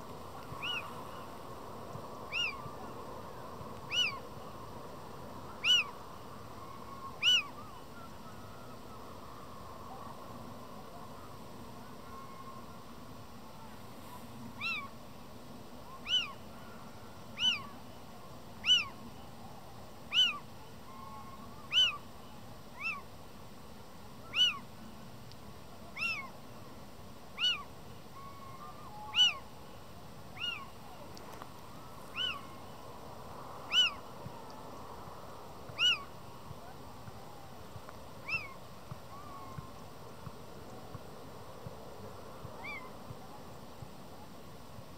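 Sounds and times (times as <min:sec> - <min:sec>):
owl mewing call: 0:00.6 - 0:01.3, 0:02.3 - 0:02.7, 0:03.9 - 0:04.2, 0:05.5 - 0:09.1, 0:14.6 - 0:14.9, 0:15.9 - 0:16.4, 0:17.4 - 0:17.8, 0:18.6 - 0:19.0, 0:20.1 - 0:22.1, 0:22.7 - 0:23.1, 0:24.2 - 0:24.7, 0:26.0 - 0:26.3, 0:27.4 - 0:29.5, 0:30.4 - 0:30.8, 0:32.1 - 0:32.7, 0:33.7 - 0:34.0, 0:35.8 - 0:36.1, 0:38.2 - 0:39.7, 0:42.6 - 0:42.9.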